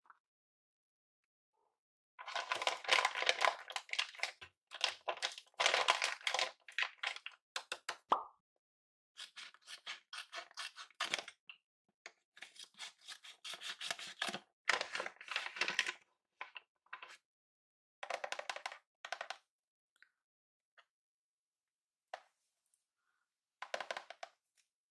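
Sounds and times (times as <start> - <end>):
paper crinkling and rustling: 2.2 - 7.2.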